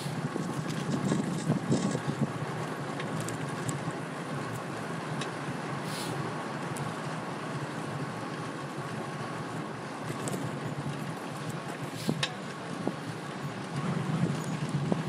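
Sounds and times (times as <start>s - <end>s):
wind on microphone: 0.0s - 2.5s, 11.9s - 15.0s
traffic rumble: 0.0s - 15.0s
short hiss: 5.8s - 6.2s.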